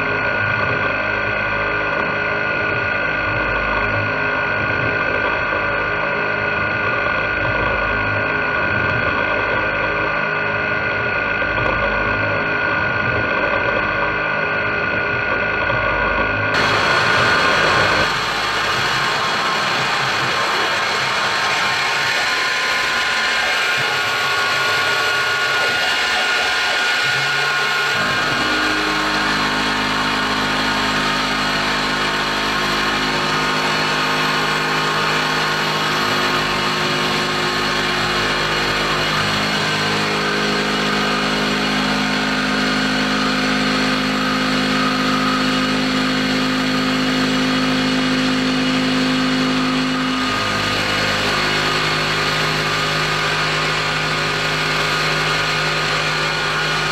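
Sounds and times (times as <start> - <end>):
low multi-tone hum: 10.8 - 56.9
end mill cutting metal: 16.6 - 56.9
milling machine spindle running: 16.6 - 56.9.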